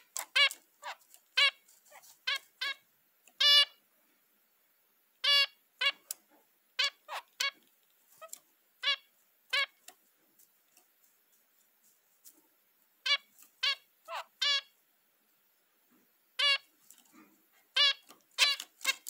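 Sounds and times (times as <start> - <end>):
finch beeping calls: 13.1 - 14.7.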